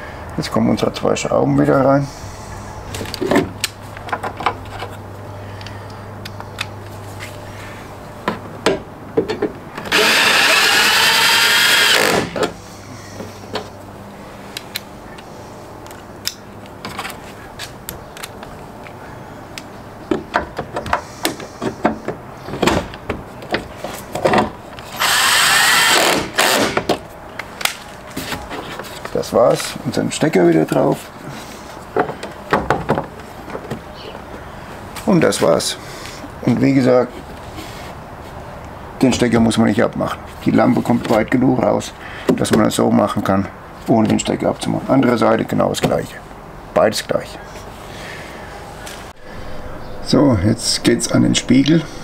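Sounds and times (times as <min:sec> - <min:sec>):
cordless drill running: 0:09.9 - 0:12.4, 0:25.0 - 0:26.8.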